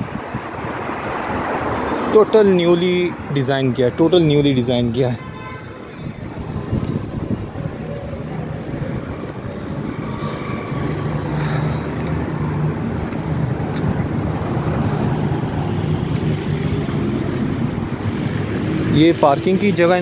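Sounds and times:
street noise: 0.0s - 20.0s
vehicle engine humming: 5.7s - 20.0s.

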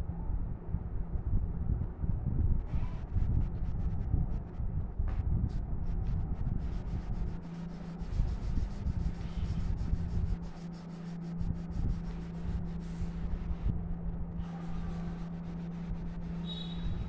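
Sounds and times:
steady low hum: 0.0s - 17.0s
pencil scratching on paper: 6.6s - 13.4s, 14.4s - 17.0s.

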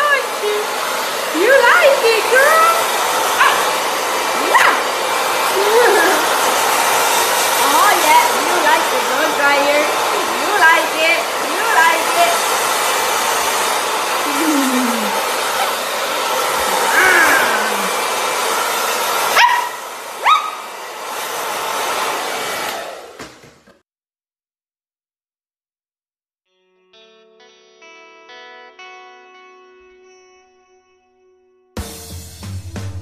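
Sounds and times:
hair dryer blowing: 0.0s - 23.8s
puppy barking: 3.4s - 3.8s, 4.4s - 4.9s, 19.3s - 20.7s.

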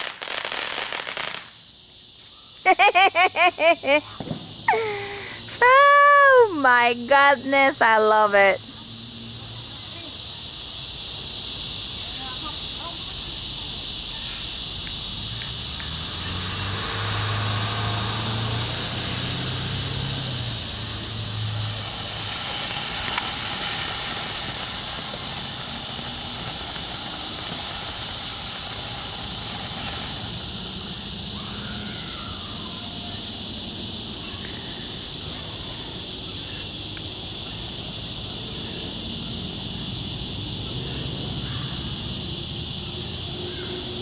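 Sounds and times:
crickets chirring: 0.0s - 44.0s
firework spraying sparks hissing: 0.0s - 44.0s
sharp firework pop: 4.2s - 4.6s.

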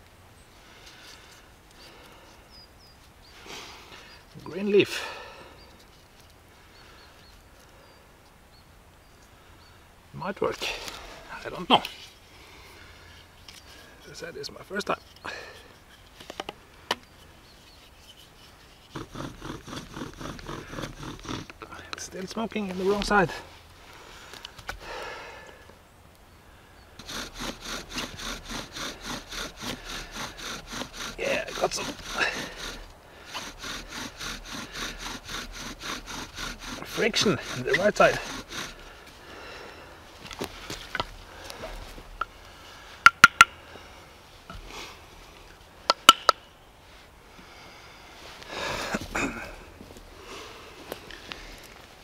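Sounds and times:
wooden board rustling: 15.0s - 21.6s, 40.2s - 42.4s
wooden pieces knocking: 15.9s - 17.3s, 43.0s - 43.5s
bow drill rasping squeak: 17.0s - 21.5s, 27.0s - 38.9s.

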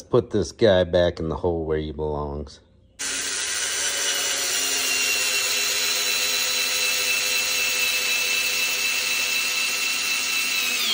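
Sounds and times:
electric screwdriver motor whining: 3.0s - 10.9s.

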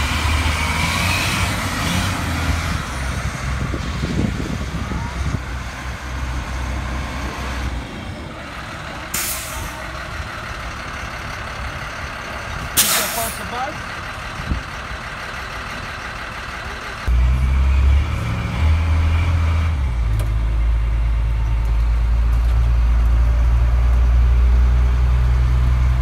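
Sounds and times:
diesel bus engine rumbling: 0.0s - 26.0s
air brake hisses: 12.8s - 13.4s.

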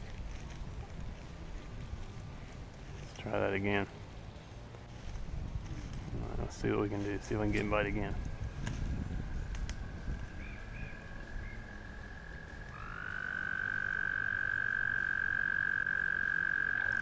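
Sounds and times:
distant frog trill: 9.8s - 17.0s
frog trilling: 9.8s - 17.0s.

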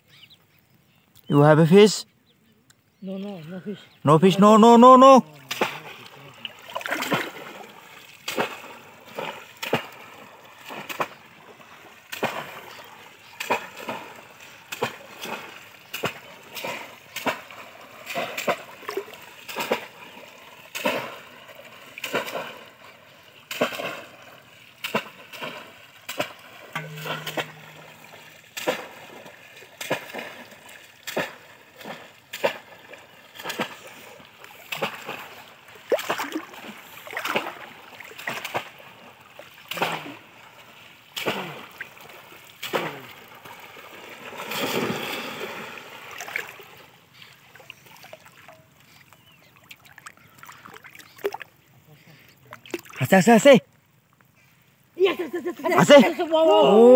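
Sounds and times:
fish traps splashing into water: 5.3s - 51.6s.

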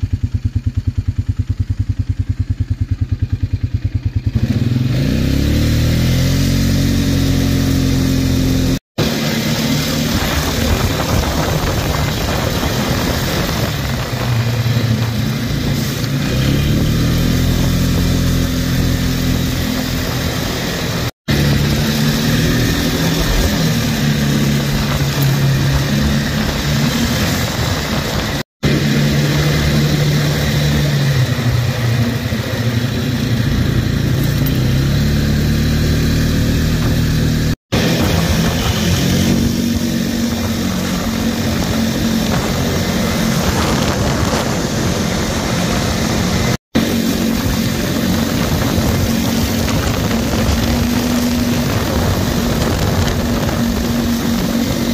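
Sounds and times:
atv engine running: 0.0s - 54.9s
wind on microphone: 9.9s - 16.0s, 17.0s - 31.4s, 37.8s - 54.9s.

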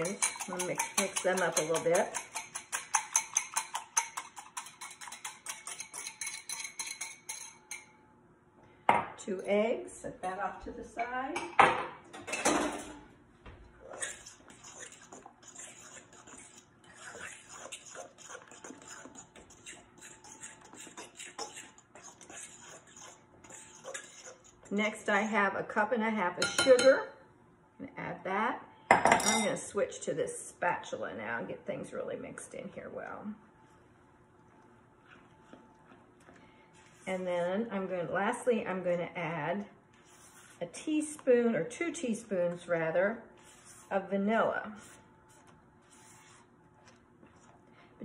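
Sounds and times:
fork scraping a bowl: 0.0s - 7.9s, 13.8s - 25.4s, 39.9s - 40.9s, 43.4s - 44.1s, 44.7s - 46.5s
whisk clinking against bowl: 0.0s - 7.9s.

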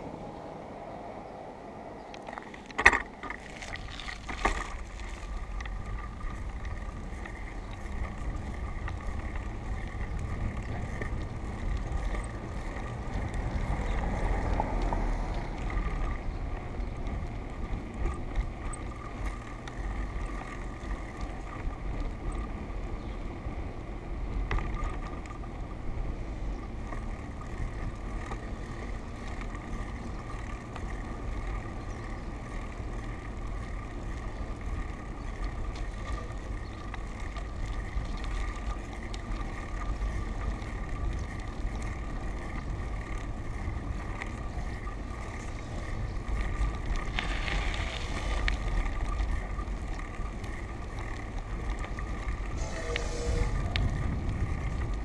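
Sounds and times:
rolling road noise: 0.0s - 55.0s
wind noise on microphone: 34.8s - 55.0s.

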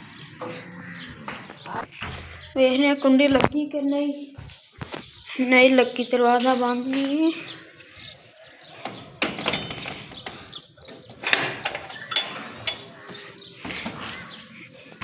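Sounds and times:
metal door squeak: 8.8s - 10.2s, 11.0s - 13.0s
metallic clicks and knocks: 8.8s - 12.9s.

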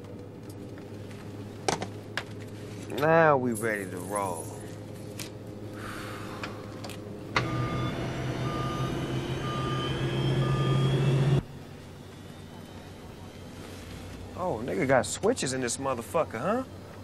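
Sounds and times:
rising engine whine: 4.4s - 16.8s
jet engines starting up: 5.8s - 16.0s
electronic beep: 7.4s - 11.4s.

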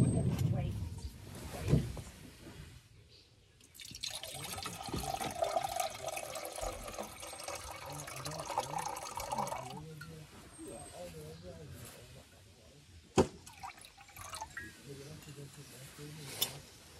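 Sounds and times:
water pouring into metal cup: 3.7s - 9.8s, 13.4s - 14.8s.

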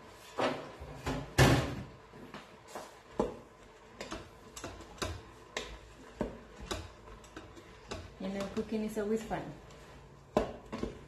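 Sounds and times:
wooden spoon knocking metal pot: 3.2s - 9.6s, 10.3s - 11.0s.

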